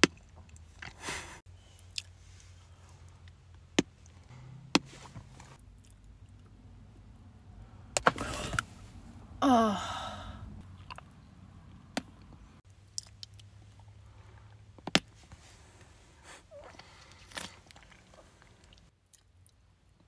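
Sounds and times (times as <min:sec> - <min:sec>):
chewing and sucking candy: 0:01.7 - 0:03.3, 0:16.2 - 0:19.6.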